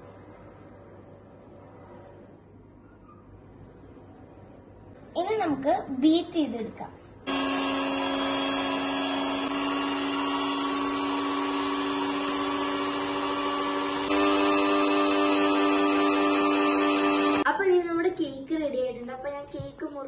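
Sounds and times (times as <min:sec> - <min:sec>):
electric hand mixer whirring: 0:07.3 - 0:17.5.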